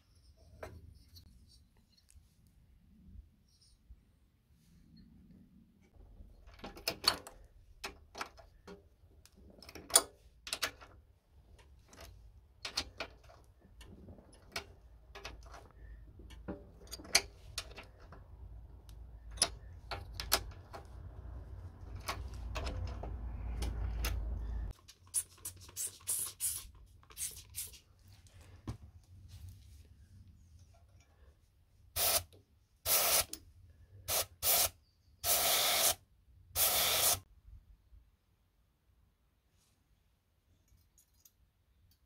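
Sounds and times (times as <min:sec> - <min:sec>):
compressed air hissing: 0:32.0 - 0:32.3, 0:32.9 - 0:33.3, 0:34.1 - 0:36.0, 0:36.6 - 0:37.2.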